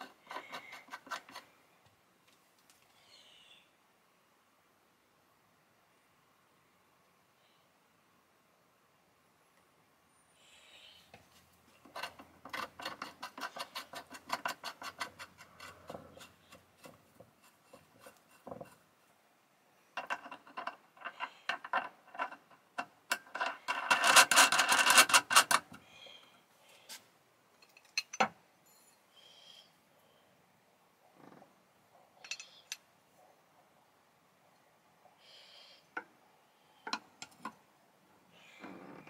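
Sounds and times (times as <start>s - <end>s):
metal rubbing and clicking: 0.0s - 1.5s, 11.8s - 19.1s, 20.0s - 25.8s, 32.2s - 32.8s.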